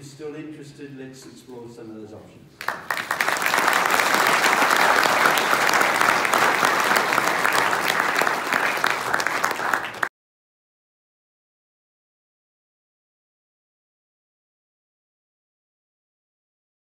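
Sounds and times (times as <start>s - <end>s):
audience applauding: 2.6s - 10.1s.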